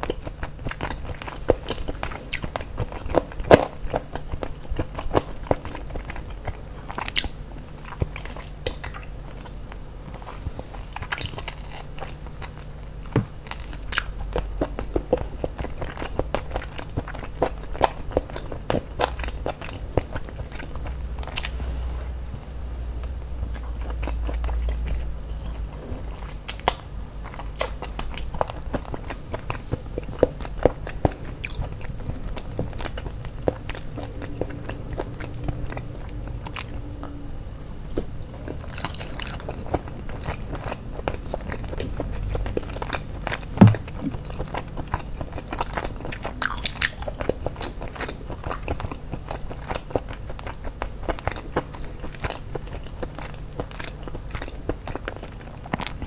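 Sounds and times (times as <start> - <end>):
bites and chewing: 0.0 - 21.5, 23.0 - 56.0.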